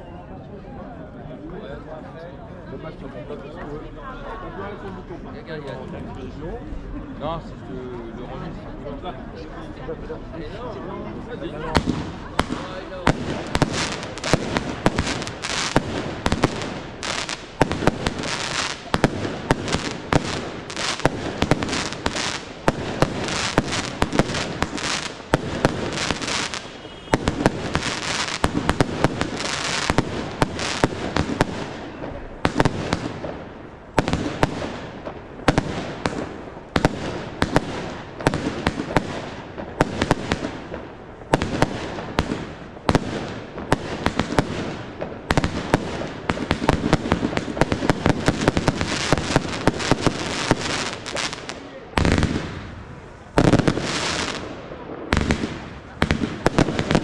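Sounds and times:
fireworks crackling: 11.1 - 57.0
fireworks launching and banging: 11.5 - 57.0.

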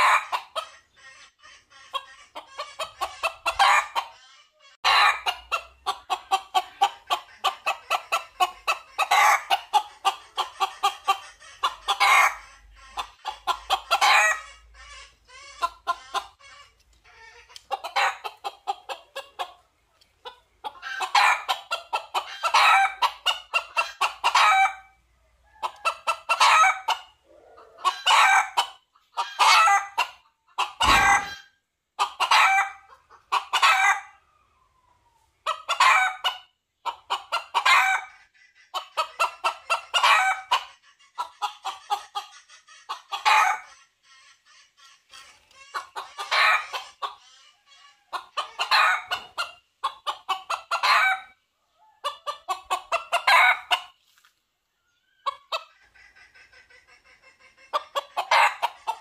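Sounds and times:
junglefowl clucking: 0.0 - 59.0
dull thump: 30.8 - 31.3.

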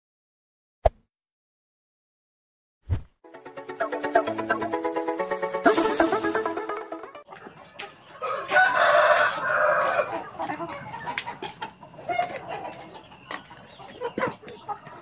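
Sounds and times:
chickens clucking: 6.5 - 15.0
rooster crowing: 8.2 - 10.2.

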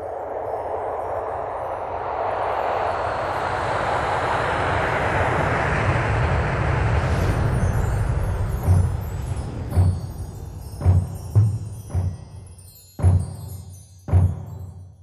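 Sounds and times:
whoosh riser with deep rumble: 0.0 - 12.6.

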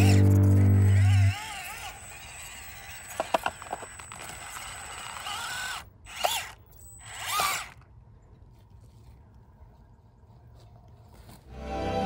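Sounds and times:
electric motor whining: 0.0 - 7.8.

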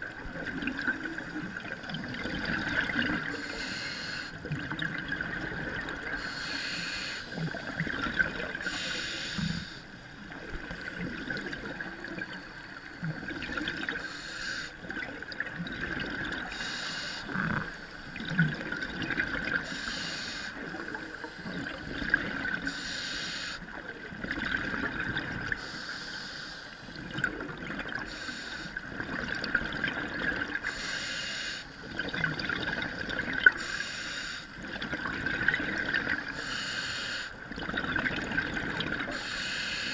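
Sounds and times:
steady regulator hiss: 3.2 - 4.4, 6.2 - 7.8, 8.6 - 10.1, 14.0 - 14.9, 16.4 - 18.2, 19.6 - 21.8, 22.6 - 23.6, 25.6 - 27.0, 28.0 - 28.8, 30.6 - 31.9, 33.6 - 34.6, 36.3 - 37.4, 39.1 - 39.9.

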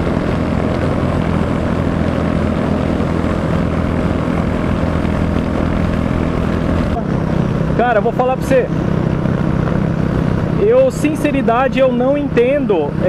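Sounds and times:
motorcycle engine under load: 0.0 - 13.0
wind noise: 0.0 - 13.0.

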